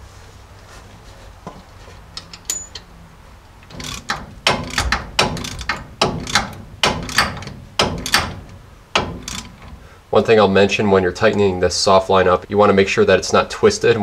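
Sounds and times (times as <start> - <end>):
ratcheting wrench clicking: 3.6 - 9.8.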